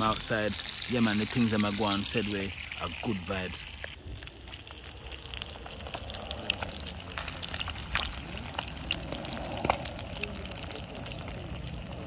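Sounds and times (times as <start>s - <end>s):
fish sizzling in hot oil: 0.0s - 12.0s
crackling pops: 5.3s - 10.0s.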